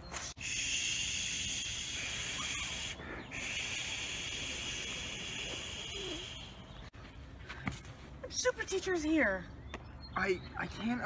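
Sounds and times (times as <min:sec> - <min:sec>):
high-pitched hiss: 0:00.4 - 0:06.6.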